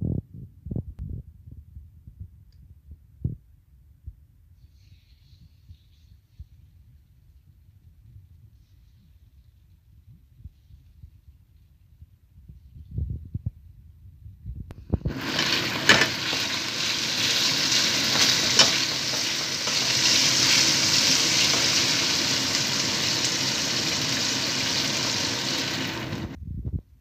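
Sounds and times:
meat sizzling in hot oil: 0:15.0 - 0:26.4.

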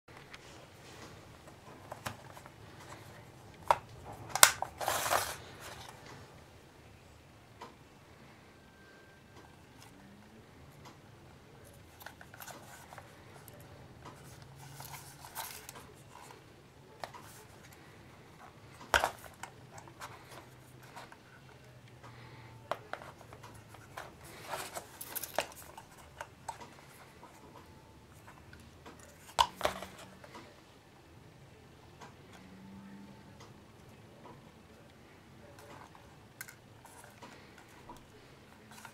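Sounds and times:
box lid and latches clicking: 0:03.6 - 0:05.4.

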